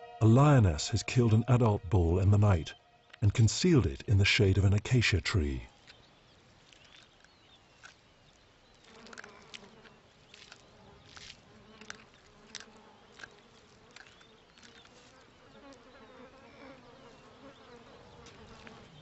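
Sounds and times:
flies buzzing: 5.4s - 19.0s.

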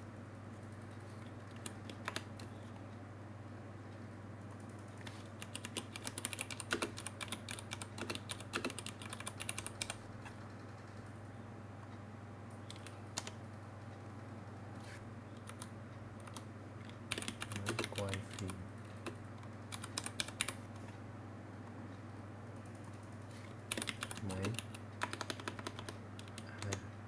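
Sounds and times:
steady low hum: 0.0s - 27.0s
typing on computer keyboard: 1.5s - 2.5s, 4.6s - 10.4s, 12.6s - 13.4s, 15.4s - 20.6s, 23.7s - 26.8s.

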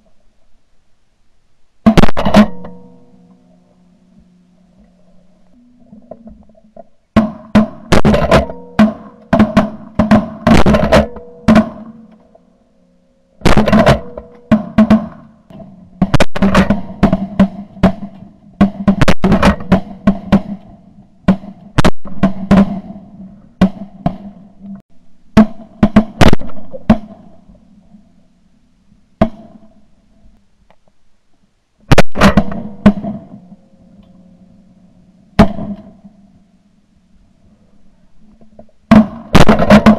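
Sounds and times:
steady tones: 0.9s - 30.6s
shotgun blasts: 31.9s - 33.4s, 35.4s - 36.0s, 38.9s - 39.9s.

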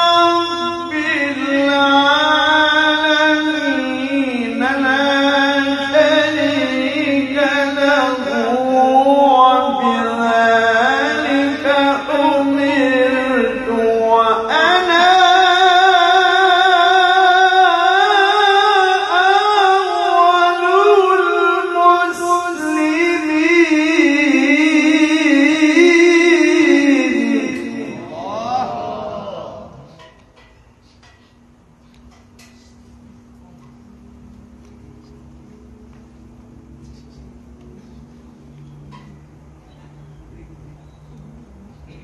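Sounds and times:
man reciting melodically: 0.0s - 30.1s.

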